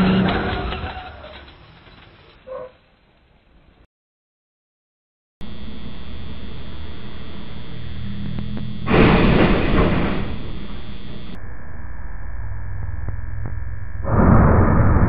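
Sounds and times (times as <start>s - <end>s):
steady electrical hum: 5.4s - 14.1s
truck crashing into bridge: 8.9s - 10.3s.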